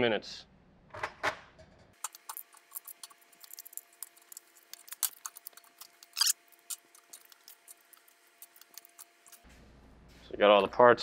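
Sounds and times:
small metal parts clinking: 0:02.0 - 0:09.4.

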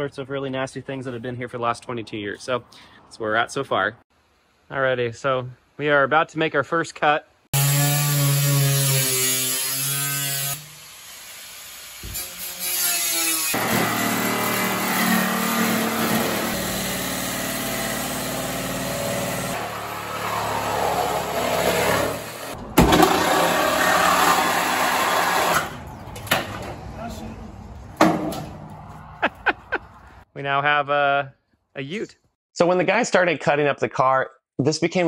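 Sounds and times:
cut-off wheel grinding metal: 0:12.1 - 0:25.8.

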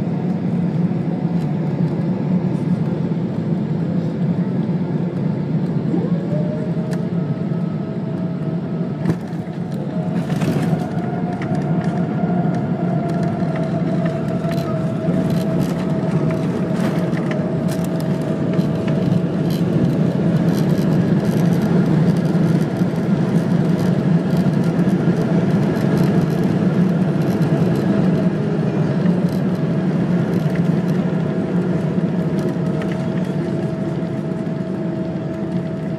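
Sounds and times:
jet engines and wheels rumbling: 0:00.0 - 0:35.9.

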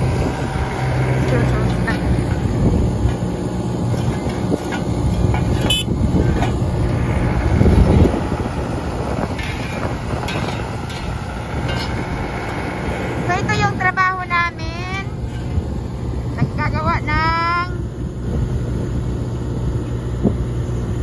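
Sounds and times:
diesel engine running: 0:00.0 - 0:21.0.

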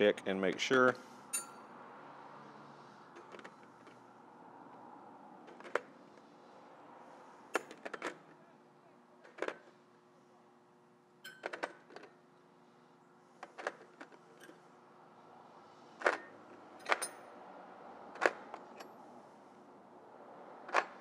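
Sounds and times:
metal wrenches clinking: 0:00.7 - 0:01.6, 0:11.2 - 0:11.6, 0:16.8 - 0:17.2.

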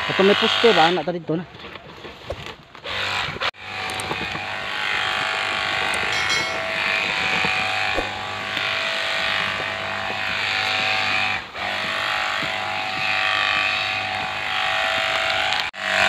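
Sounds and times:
electric sprayer pump humming and hissing: 0:03.6 - 0:06.0, 0:07.7 - 0:16.0.

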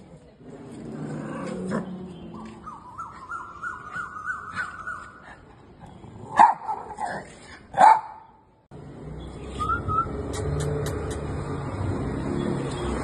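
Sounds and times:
dog barking: 0:06.4 - 0:07.0, 0:07.8 - 0:08.3.

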